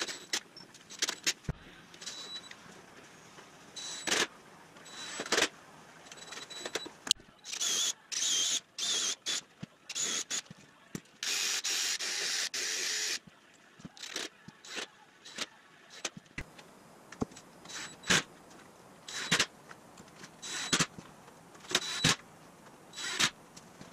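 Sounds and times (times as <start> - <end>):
cordless drill driving screws: 7.5 - 10.4, 11.2 - 13.2, 20.4 - 20.9, 21.7 - 22.2, 23.0 - 23.4.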